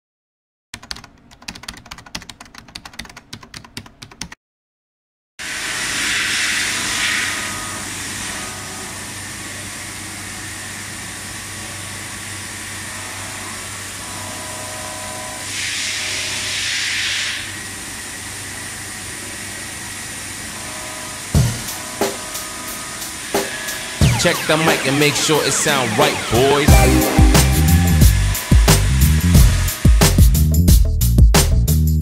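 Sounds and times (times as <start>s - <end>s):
hiss: 5.5s - 7.4s, 15.6s - 17.5s
machine hum with high whine: 5.5s - 16.6s.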